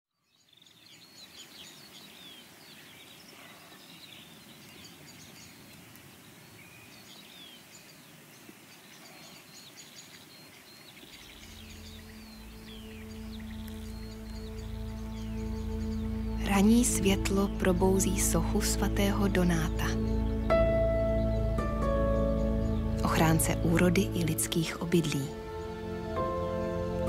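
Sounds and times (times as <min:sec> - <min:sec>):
songbirds singing: 0:00.1 - 0:27.0
low sustained music tones: 0:10.3 - 0:27.0.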